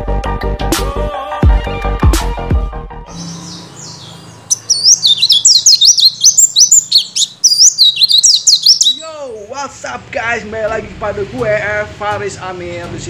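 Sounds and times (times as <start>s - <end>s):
bird twittering song: 3.1s - 9.4s.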